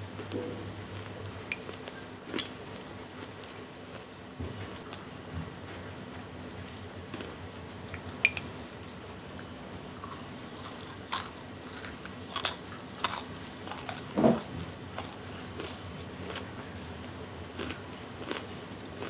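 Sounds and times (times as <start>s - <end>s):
mouth crunching and chewing: 9.3s - 19.0s.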